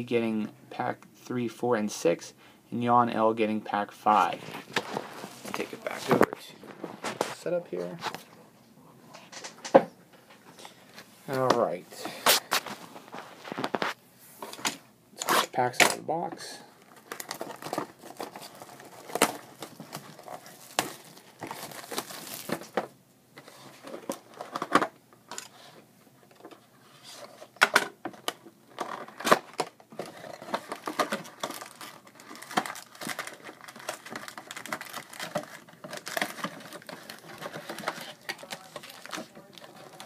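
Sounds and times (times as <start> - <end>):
foil packs being handled: 16.8 - 22.8, 28.8 - 40.0
shrink-wrap tearing and crinkling: 16.9 - 22.8, 28.7 - 40.0.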